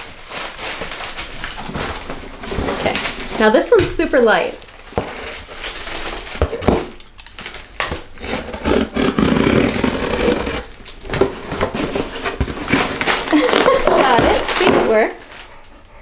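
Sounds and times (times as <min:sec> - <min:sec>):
scissors slitting packing tape: 0:05.6 - 0:14.6.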